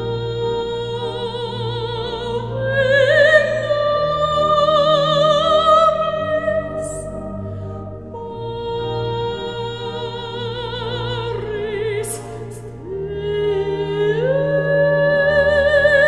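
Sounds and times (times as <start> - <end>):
operatic soprano singing: 0.0 - 16.0.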